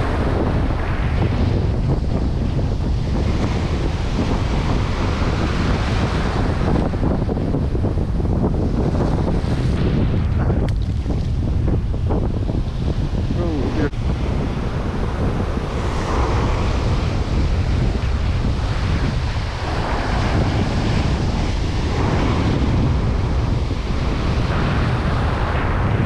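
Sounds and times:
ocean surf breaking: 0.0 - 26.0
wind buffeting microphone: 0.0 - 26.0.

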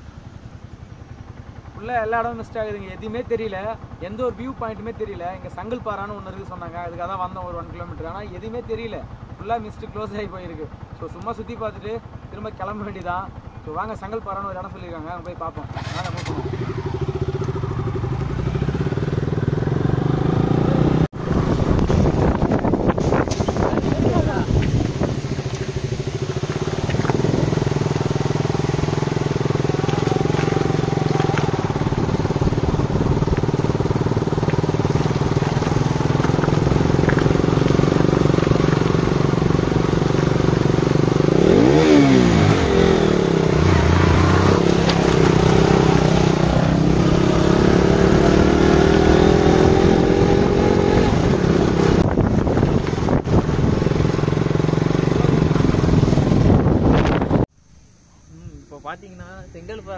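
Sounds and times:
motorcycle engines running: 0.0 - 59.9.

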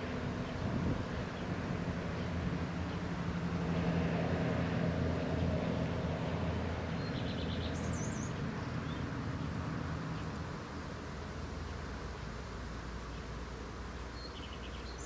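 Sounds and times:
distant engine drone: 0.0 - 15.0
small bird chirping: 7.0 - 9.0, 14.0 - 15.0.

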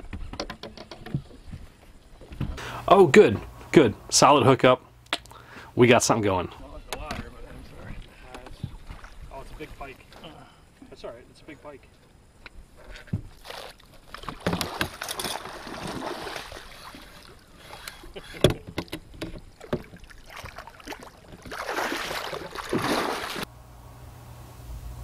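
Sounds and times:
water splashing: 7.3 - 10.4, 13.0 - 23.5
knocks against boat: 18.3 - 20.1.

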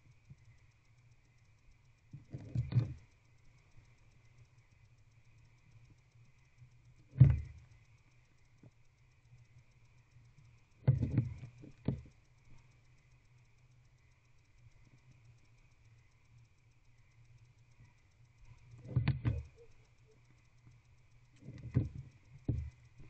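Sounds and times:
faint steady hum: 0.0 - 23.0
knocks and scrapes: 18.8 - 19.6.

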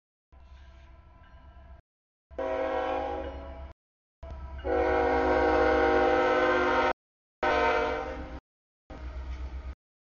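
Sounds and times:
locomotive air horn blasts: 2.3 - 3.5, 4.6 - 8.4.

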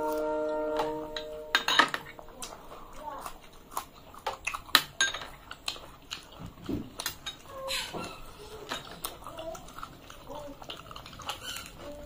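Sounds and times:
metal spoon clinking glass bowl: 1.1 - 2.2, 5.0 - 5.3
chewing and mouth sounds: 2.1 - 12.0.

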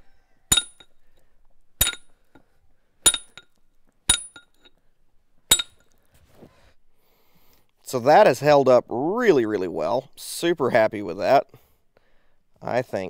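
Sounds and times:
hammer striking chisel on stone: 0.5 - 0.9, 1.8 - 2.1, 3.0 - 3.5, 4.1 - 4.7, 5.5 - 5.8.

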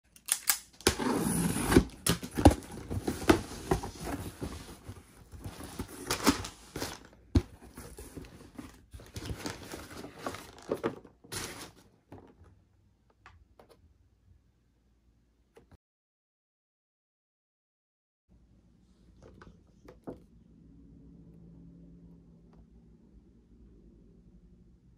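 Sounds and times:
scissors slitting packing tape: 0.1 - 2.4
packing paper rustling: 0.3 - 11.9.

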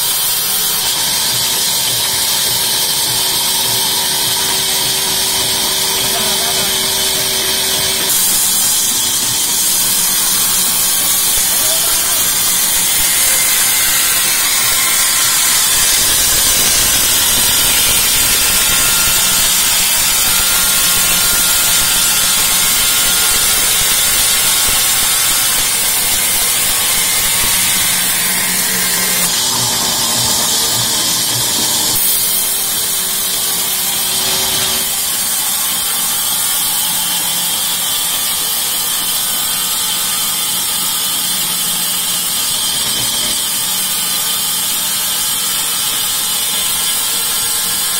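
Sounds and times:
band saw blade cutting log: 0.0 - 47.9
machine hum: 0.9 - 37.8.

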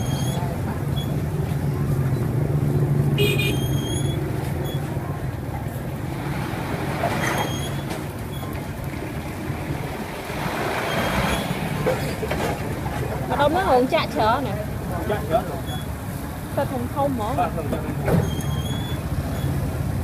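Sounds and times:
high squeal: 0.0 - 1.2, 3.4 - 4.9, 7.1 - 8.6, 10.7 - 12.2, 15.6 - 16.0, 18.1 - 19.6
street traffic noise: 0.0 - 20.0.

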